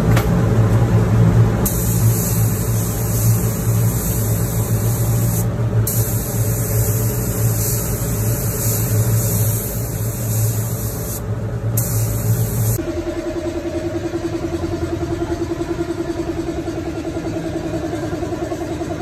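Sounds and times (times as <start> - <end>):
steady motor hum: 0.0 - 19.0
spray gun hissing: 1.6 - 12.8.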